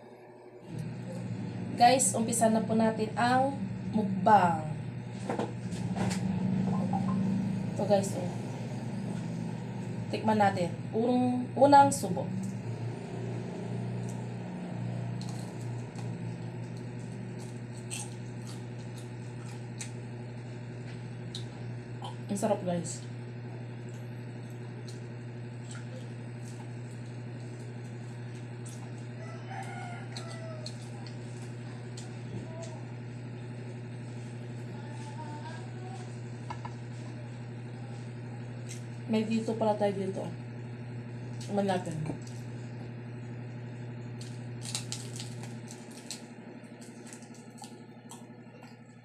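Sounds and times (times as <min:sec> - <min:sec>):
low electrical hum: 0:00.0 - 0:49.0
crunchy food chewing: 0:13.8 - 0:22.2, 0:23.4 - 0:35.0, 0:43.9 - 0:49.0
rooster crowing: 0:29.0 - 0:31.3.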